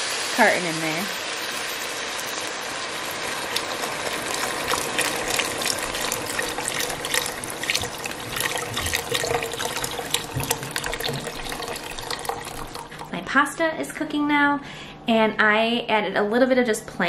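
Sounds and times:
broth pouring into a pot: 0.0s - 13.2s.

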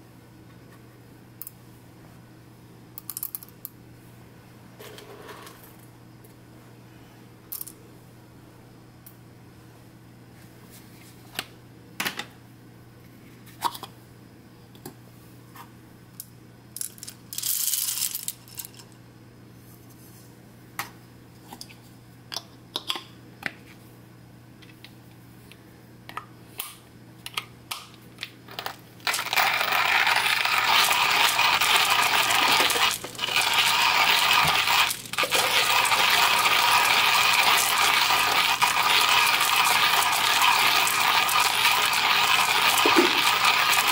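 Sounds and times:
coffee beans crunching in grinder: 16.8s - 18.9s, 28.5s - 43.9s
coffee grinder rattling: 16.8s - 18.9s, 28.5s - 43.9s.

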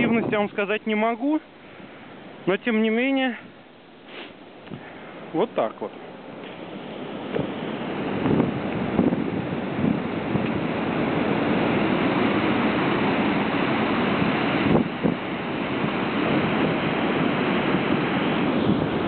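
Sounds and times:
water rushing at a dam: 4.1s - 19.0s.

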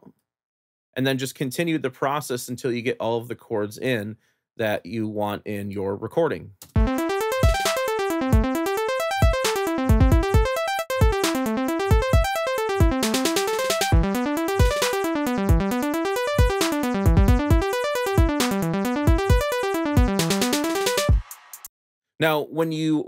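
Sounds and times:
looping drum beat: 6.7s - 21.7s
arpeggiated synth chord: 6.8s - 21.2s.

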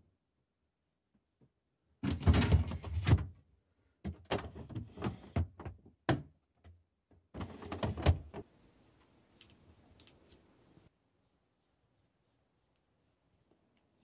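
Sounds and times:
plastic drawers sliding and knocking: 2.0s - 3.4s, 4.0s - 6.3s, 7.3s - 8.4s.

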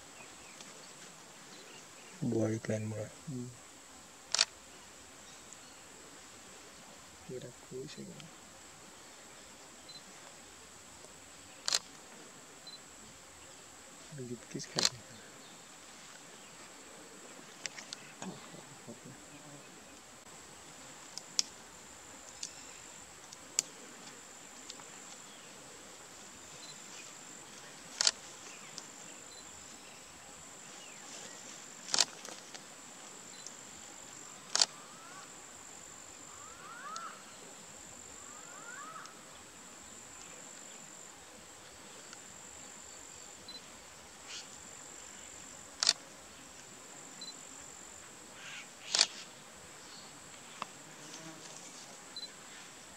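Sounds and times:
high-pitched insect buzz: 26.2s - 52.7s.

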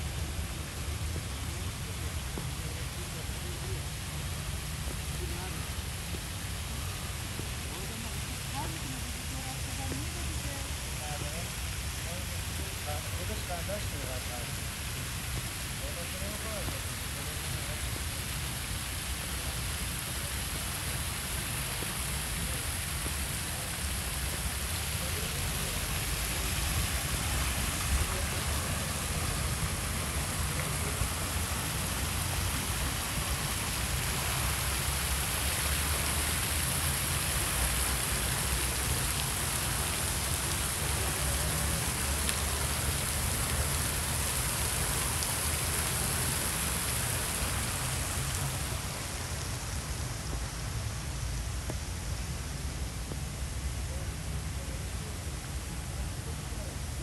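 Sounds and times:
falling water hissing: 0.0s - 57.0s.

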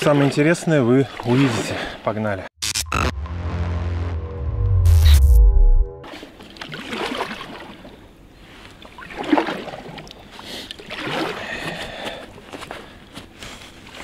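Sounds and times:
paddle splashing through water: 6.1s - 8.0s, 8.6s - 11.7s.

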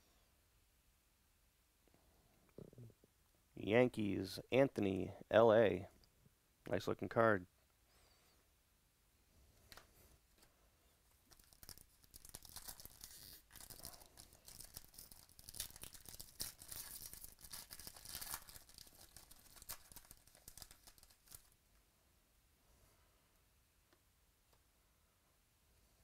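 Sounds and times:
foil wrapper tearing and crinkling: 11.3s - 21.6s.

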